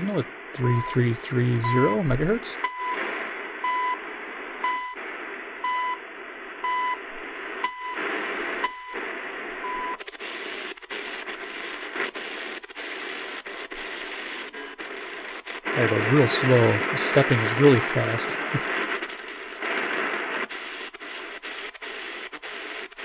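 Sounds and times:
radio static hiss: 0.0 - 23.0
short high radio beeps: 0.6 - 1.0, 1.6 - 2.0, 2.6 - 3.0.

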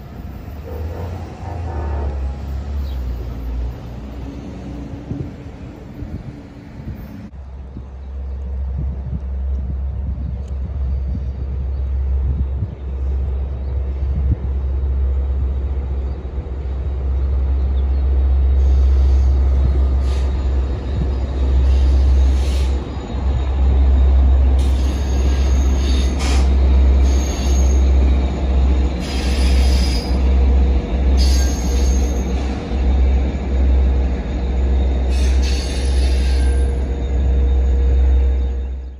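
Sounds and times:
metallic wheel squeal: 18.6 - 30.4, 31.1 - 38.9.

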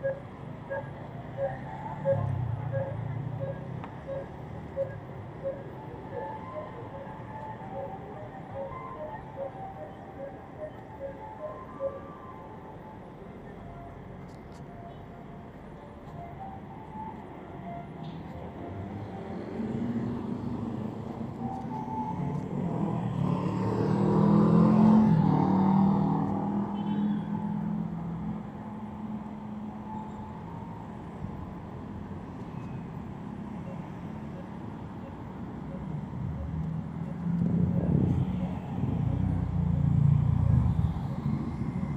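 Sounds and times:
hum of passing cars: 15.6 - 41.9
vehicle engine passing close: 22.5 - 26.7.

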